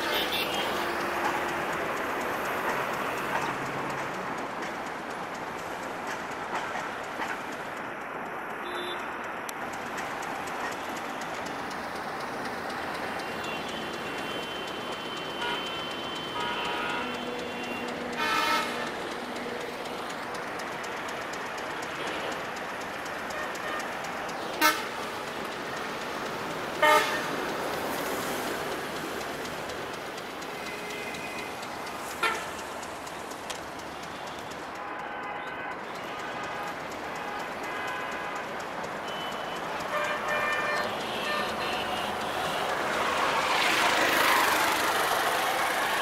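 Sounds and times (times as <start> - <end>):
vehicle horn toots: 0.0 - 0.8, 8.6 - 9.1, 13.4 - 18.9, 24.6 - 25.0, 26.8 - 27.3, 39.0 - 42.6
city traffic hum: 0.0 - 46.0
rail noise: 0.0 - 46.0.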